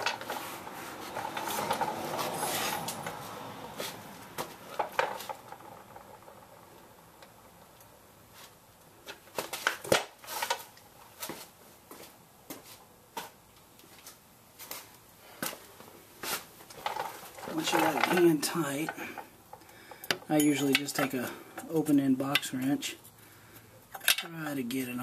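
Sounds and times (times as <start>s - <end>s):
hand tools clinking: 19.9s - 22.6s.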